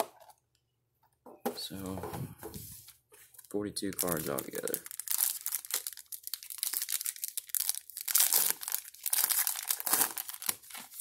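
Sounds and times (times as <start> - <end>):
foil wrapper tearing and crinkling: 4.0 - 11.0.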